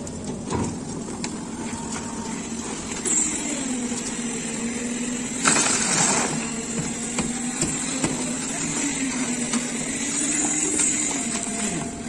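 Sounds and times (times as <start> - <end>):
machine engine running: 0.0 - 12.0
wet concrete sliding from wheelbarrow: 5.5 - 6.5.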